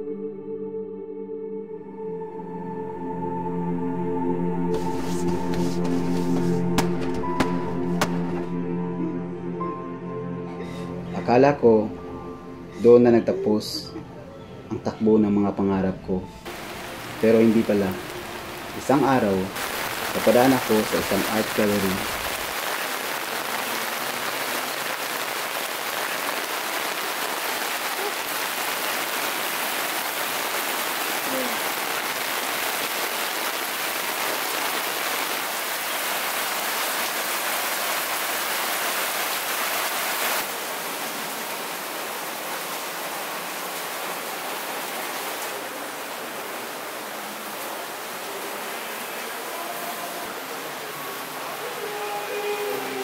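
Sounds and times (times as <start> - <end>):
rain falling: 4.7 - 8.5, 16.4 - 53.0.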